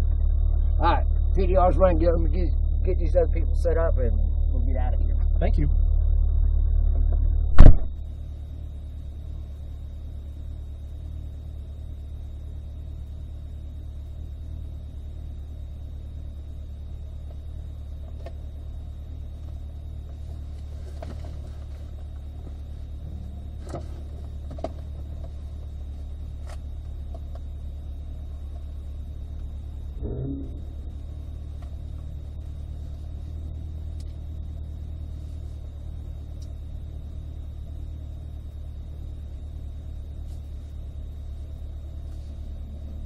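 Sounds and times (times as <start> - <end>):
car engine idling: 0.0 - 43.0
loud thump: 7.0 - 8.0.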